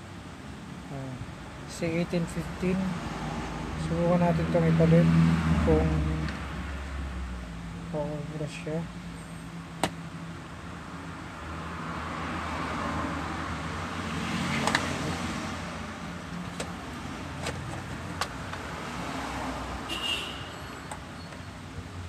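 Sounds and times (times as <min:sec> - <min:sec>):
vehicle passing by: 0:02.5 - 0:07.4, 0:11.5 - 0:19.9.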